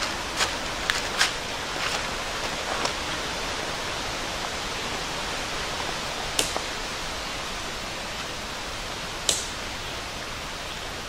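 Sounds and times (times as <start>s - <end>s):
steady rushing hiss: 0.0s - 11.0s
tent pole clips clicking: 6.4s - 6.7s, 9.2s - 9.7s.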